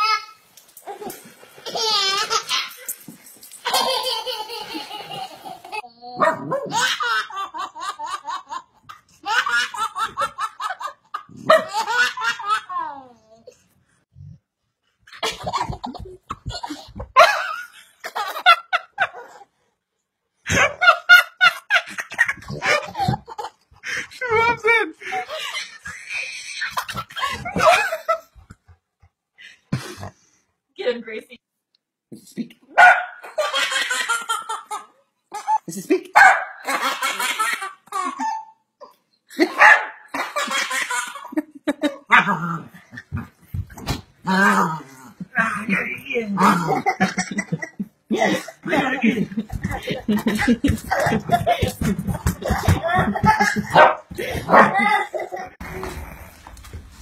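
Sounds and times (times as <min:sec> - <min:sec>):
dog barking: 0:06.2 - 0:06.8, 0:32.8 - 0:33.2, 0:36.2 - 0:36.6, 0:39.5 - 0:40.0, 0:53.7 - 0:54.8
high-pitched laughter: 0:45.4 - 0:56.0.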